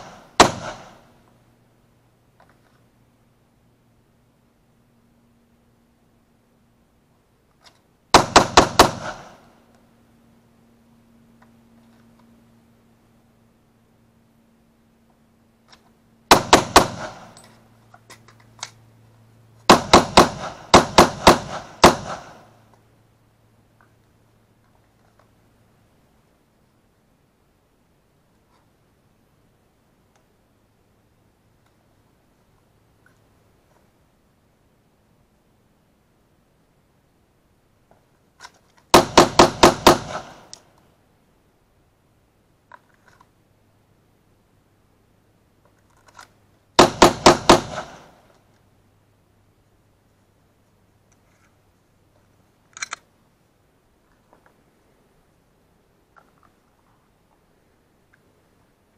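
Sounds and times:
pistol shots: 0.0s - 1.1s, 8.1s - 9.5s, 16.3s - 17.4s, 19.7s - 22.6s, 38.9s - 40.5s, 46.8s - 48.2s.

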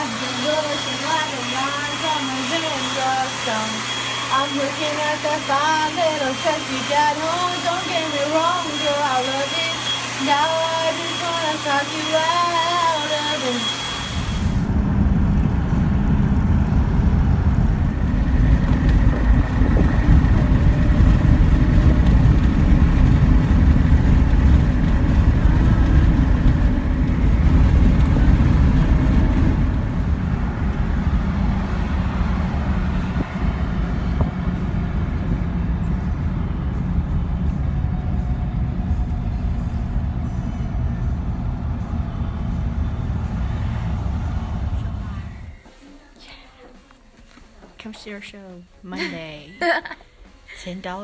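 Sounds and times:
loud low rumble: 14.4s - 45.7s
music: 36.0s - 43.2s, 45.2s - 51.0s.

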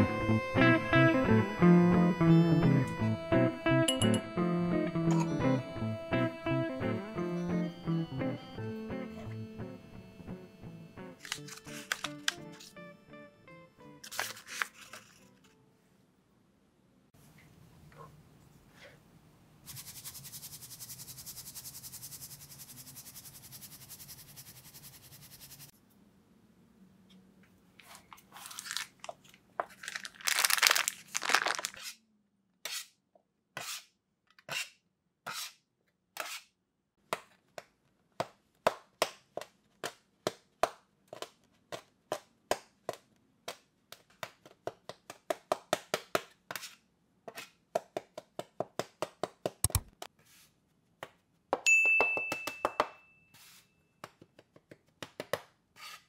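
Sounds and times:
rustling on worktop: 14.0s - 15.5s, 27.8s - 32.0s
knife cutting strokes: 32.6s - 32.9s, 33.6s - 35.6s, 36.2s - 36.5s.

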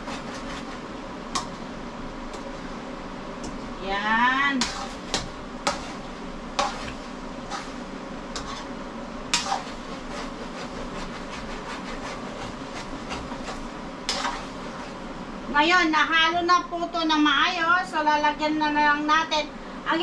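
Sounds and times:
spatula scraping a wok: 0.0s - 0.9s, 4.6s - 15.0s
meat sizzling: 4.6s - 15.0s.

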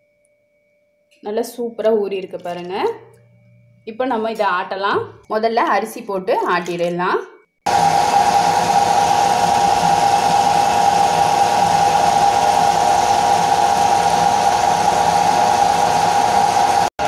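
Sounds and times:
wet grinder motor hum: 7.7s - 17.0s.

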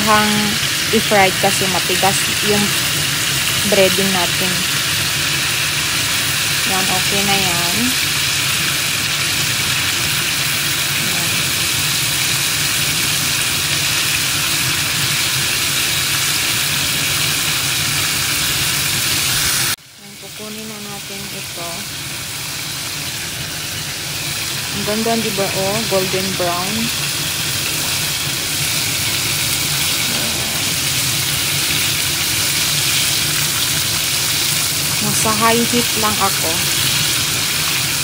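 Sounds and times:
chicken deep-frying in hot oil: 0.0s - 38.0s.

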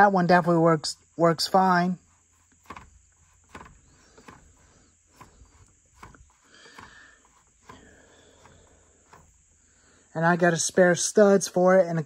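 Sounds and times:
light rustling: 2.0s - 9.9s
faint clicks and knocks: 2.4s - 9.6s.

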